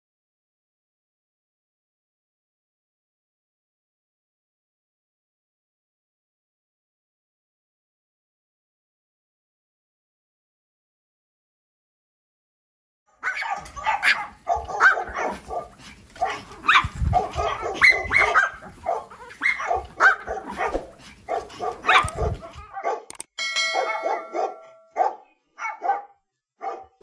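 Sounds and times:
small dogs yapping: 13.2s - 23.0s.

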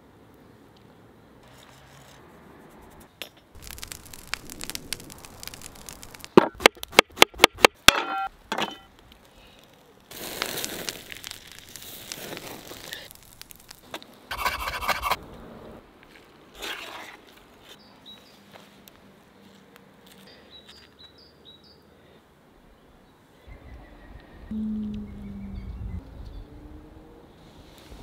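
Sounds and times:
fish crackling and hissing on fire: 3.6s - 6.4s, 9.2s - 15.2s
faint high bird chirps: 23.4s - 26.6s.

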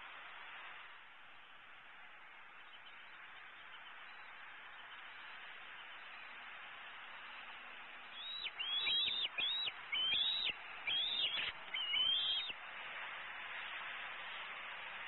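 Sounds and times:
background hiss: 0.0s - 15.0s
eagle chittering call: 8.0s - 12.6s.

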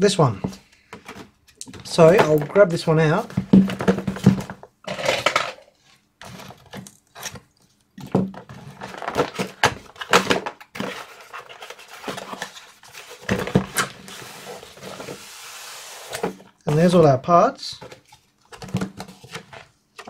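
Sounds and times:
sliding rustle of paper cover: 10.8s - 16.9s.

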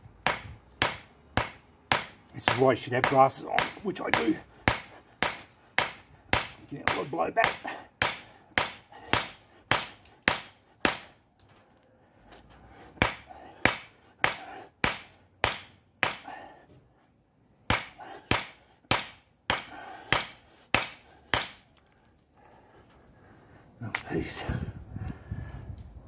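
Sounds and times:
hammer striking rock: 0.3s - 11.1s, 13.0s - 16.3s, 17.7s - 21.6s.

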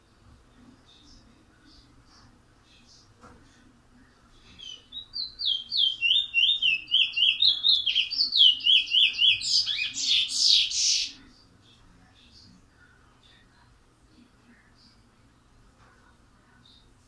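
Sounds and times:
songbird singing: 4.5s - 11.3s.

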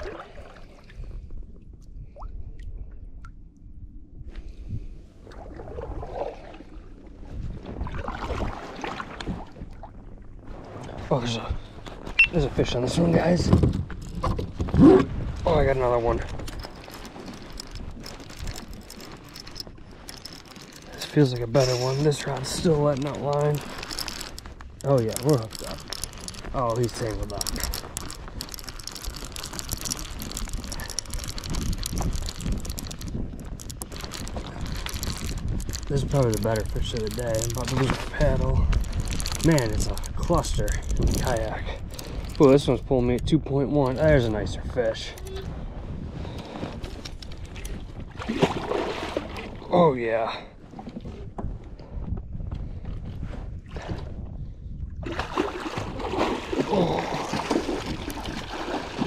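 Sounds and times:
wind rumbling on microphone: 0.0s - 59.0s
paddle splashing through water: 5.2s - 6.9s, 7.5s - 10.0s, 48.1s - 49.6s, 55.0s - 59.0s
fishing reel clicking and rattling: 16.3s - 42.7s.

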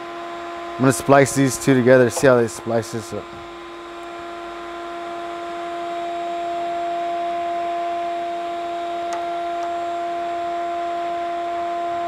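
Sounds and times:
steady hum: 0.0s - 9.1s.

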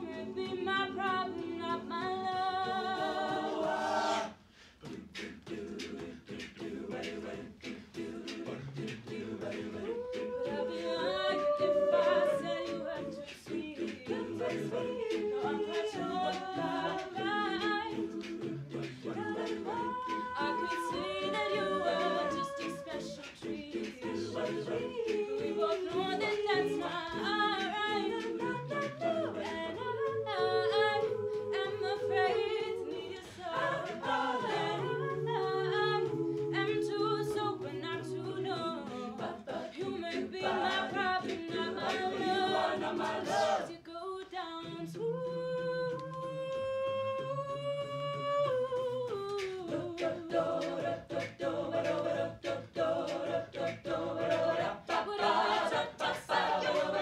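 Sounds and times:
sung backing harmonies: 0.0s - 57.0s
woman singing lead: 9.8s - 18.2s, 19.1s - 51.0s.

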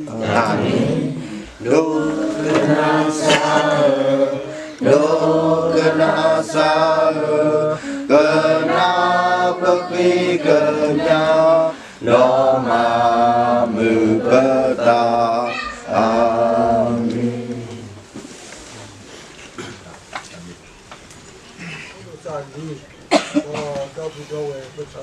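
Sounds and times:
men singing unaccompanied: 0.0s - 18.1s.

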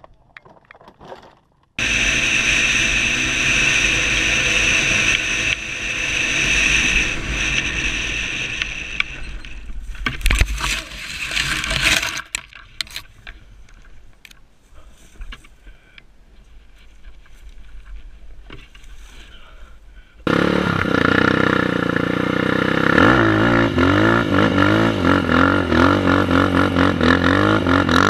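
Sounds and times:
quad engine under throttle: 1.8s - 12.2s, 20.2s - 28.0s
faint rustling: 9.4s - 20.2s.

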